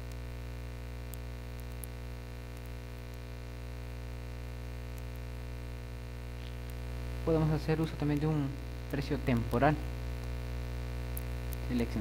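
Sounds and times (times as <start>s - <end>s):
electrical mains hum: 0.0s - 12.0s
faint clicks: 1.1s - 3.2s, 11.1s - 11.7s.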